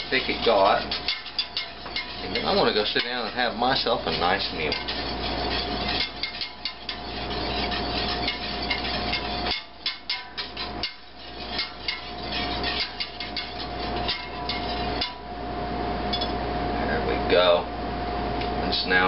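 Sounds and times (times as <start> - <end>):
whisk scraping metal pot: 0.0 - 15.4
steady low hum: 0.0 - 19.0.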